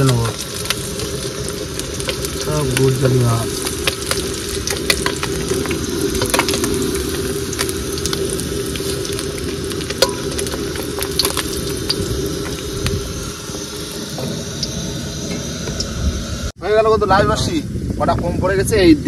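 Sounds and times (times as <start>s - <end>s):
fish sizzling in hot oil: 0.0s - 16.4s
spatula clinking and scraping pan: 10.0s - 11.5s.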